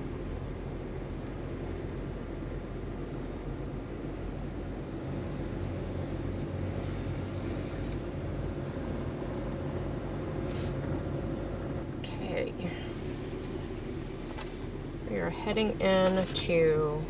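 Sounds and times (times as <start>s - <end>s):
engine and tyres rumbling: 0.0s - 17.0s
brief high hiss: 10.5s - 10.8s.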